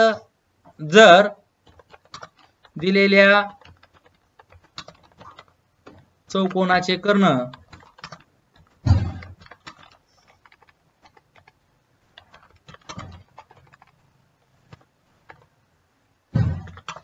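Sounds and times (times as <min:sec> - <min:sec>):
computer keyboard typing: 0:01.6 - 0:15.5, 0:16.4 - 0:17.0.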